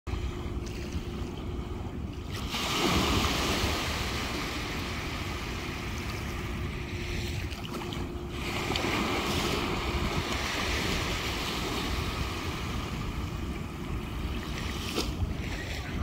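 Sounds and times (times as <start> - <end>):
waves washing up beach: 0.4 - 16.0.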